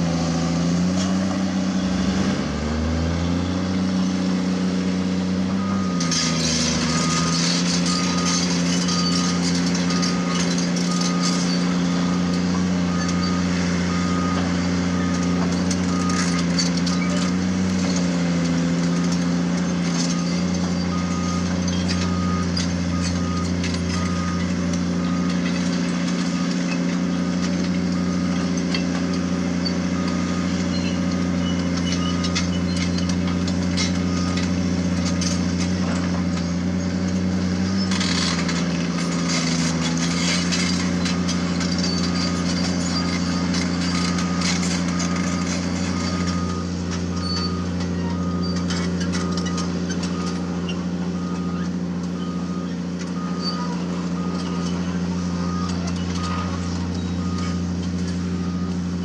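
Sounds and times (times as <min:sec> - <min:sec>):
excavator diesel engine under load: 0:00.0 - 0:59.0
reversing alarm beeping: 0:05.4 - 0:36.6, 0:37.8 - 0:59.0
tracks clinking over stones: 0:05.7 - 0:59.0.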